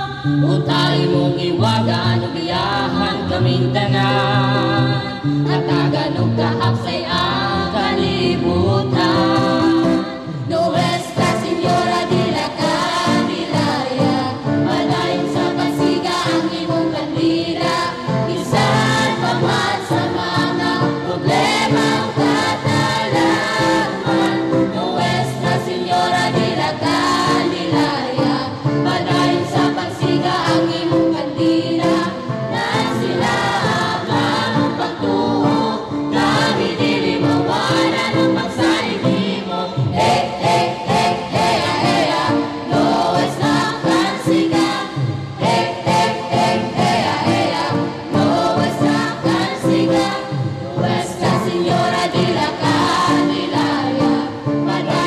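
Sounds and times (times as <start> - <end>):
choir singing a hymn: 0.0 - 55.0
instrumental backing with steady beat: 0.0 - 55.0.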